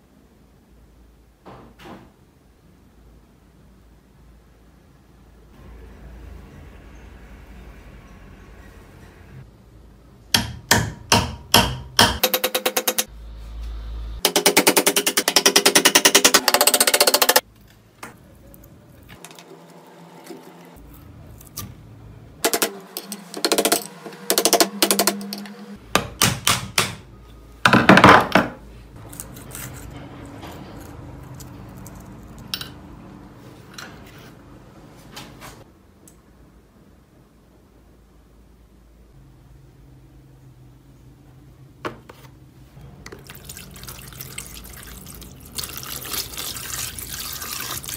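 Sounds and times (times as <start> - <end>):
hammer striking metal: 10.3 - 13.1, 14.2 - 17.4, 22.4 - 27.0.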